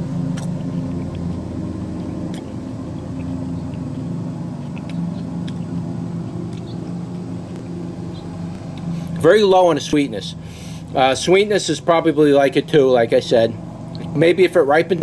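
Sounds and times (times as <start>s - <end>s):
chewing tomato: 0.0s - 10.0s, 13.6s - 14.2s
low machine hum: 0.0s - 15.0s.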